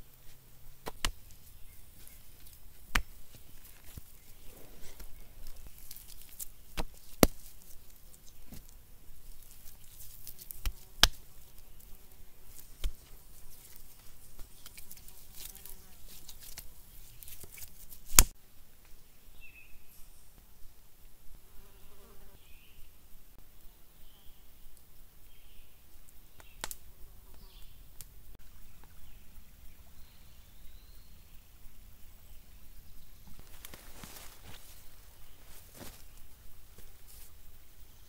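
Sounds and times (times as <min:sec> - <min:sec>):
fly buzzing: 0:00.2 - 0:18.3, 0:21.4 - 0:22.6
clay slaps: 0:00.8 - 0:01.4, 0:02.0 - 0:04.1, 0:05.0 - 0:11.6, 0:12.5 - 0:18.4
hands squishing wet clay: 0:00.8 - 0:11.6.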